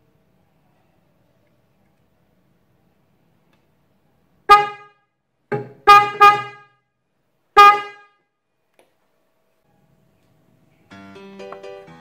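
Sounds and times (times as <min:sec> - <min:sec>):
car horn honks: 0:04.5 - 0:05.1, 0:05.8 - 0:06.8, 0:07.6 - 0:08.2.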